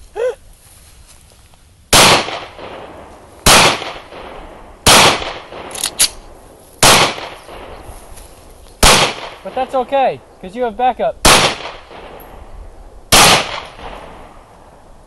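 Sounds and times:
pistol shots with echo: 1.9 - 6.2, 6.8 - 7.8, 8.8 - 9.9, 11.2 - 12.5, 13.1 - 14.5.

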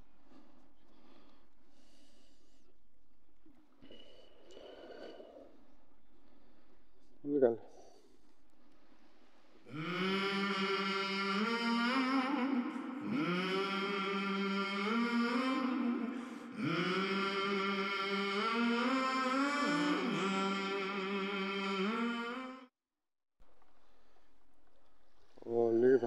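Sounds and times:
person singing long notes: 9.7 - 22.7.

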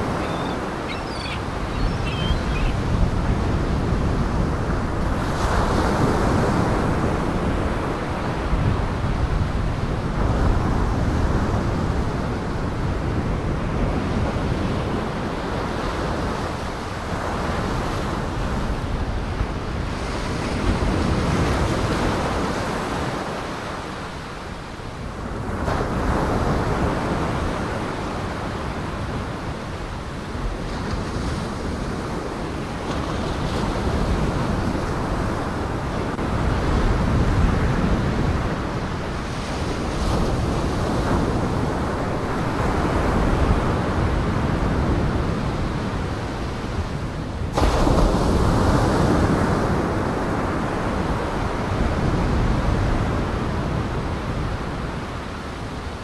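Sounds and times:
wind: 0.0 - 56.0
waves breaking: 47.5 - 52.1.

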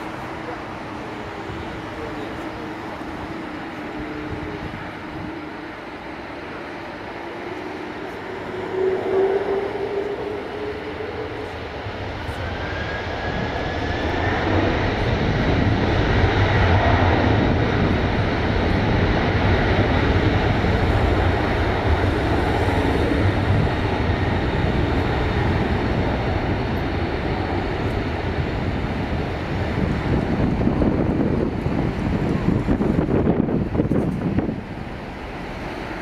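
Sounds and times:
jet engines spooling up: 0.0 - 36.0.

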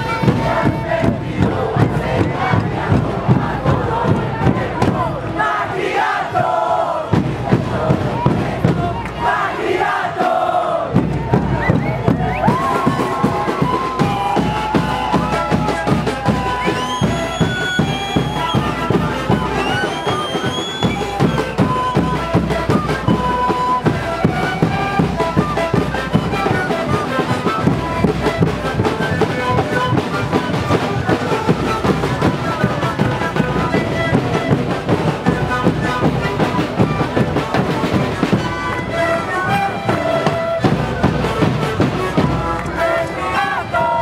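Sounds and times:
panpipes playing held notes: 0.0 - 2.6, 11.5 - 44.0
drums beating fast rhythm: 0.0 - 44.0.

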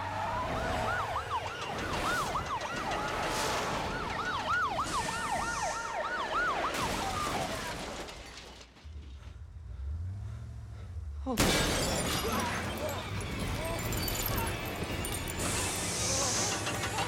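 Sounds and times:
police sirens wailing: 0.0 - 7.5
traffic noise: 8.8 - 17.0.

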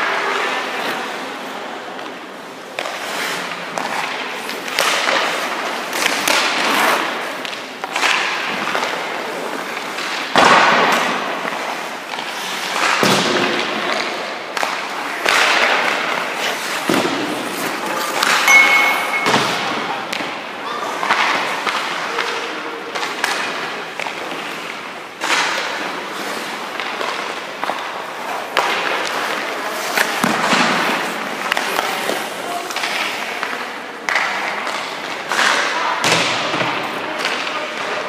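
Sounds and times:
skate blades scraping ice: 0.2 - 18.5, 23.0 - 35.7
sharp knocks of pucks or sticks: 2.7 - 20.4, 21.0 - 26.0, 26.6 - 38.0.

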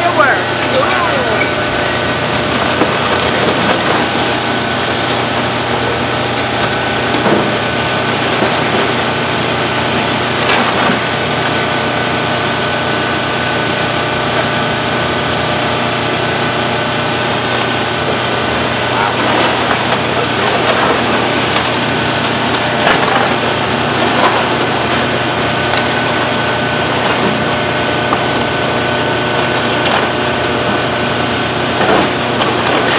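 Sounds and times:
excavator diesel engine running: 0.0 - 32.9
breaking timber cracks: 2.0 - 12.3, 18.2 - 32.9.

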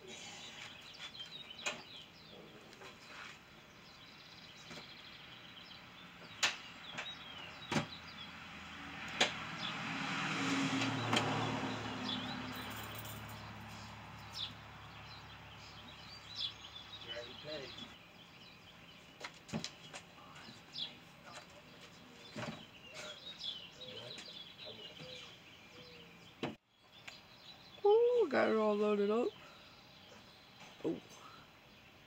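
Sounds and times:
birds chirping: 0.0 - 32.0
passing vehicle: 6.0 - 18.1
knocks and clunks of bike loading: 6.2 - 8.0, 22.3 - 23.2.

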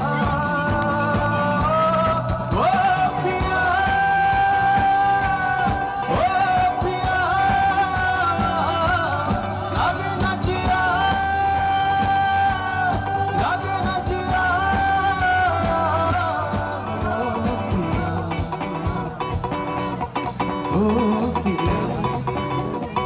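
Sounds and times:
man singing long notes: 0.0 - 23.0
rock band playing: 0.0 - 23.0.

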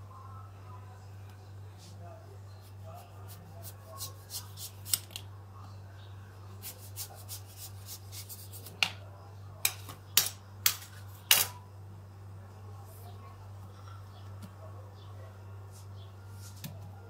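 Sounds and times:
knife cutting watermelon rind: 6.6 - 8.8.

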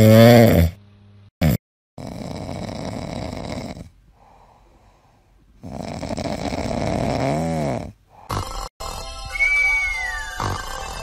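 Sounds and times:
dog snoring: 1.4 - 4.0, 5.6 - 8.7.

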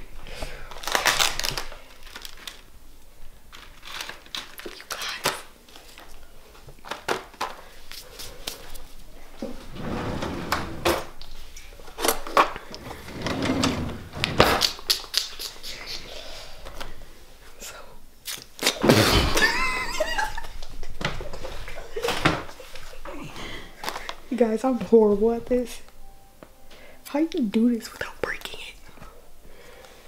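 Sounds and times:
plastic package rustling: 0.6 - 9.0.

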